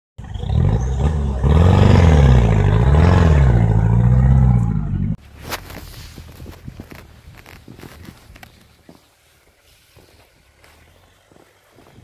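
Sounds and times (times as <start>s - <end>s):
vehicle engine revving: 0.2s - 5.2s.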